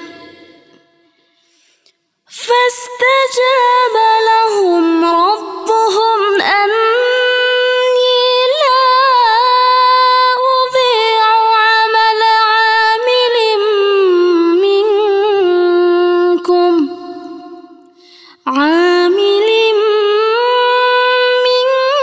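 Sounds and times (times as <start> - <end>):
woman chanting: 0.0 - 0.8, 2.4 - 17.5.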